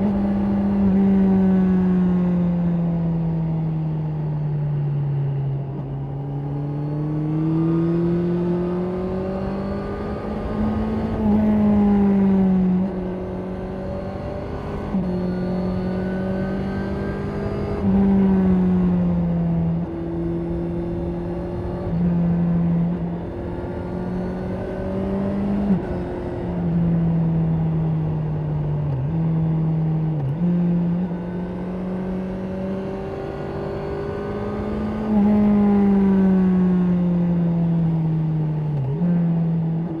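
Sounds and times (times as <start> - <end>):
motorcycle engine revving: 29.0 - 40.0.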